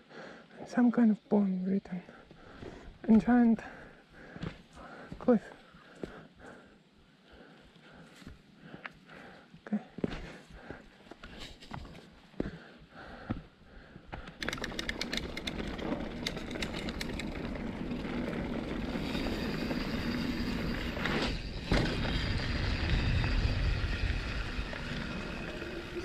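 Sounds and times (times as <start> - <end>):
bike clicking and rattling: 14.3 - 26.0
bike tyres rolling on dirt: 14.4 - 26.0
wind rumble on microphone: 15.6 - 26.0.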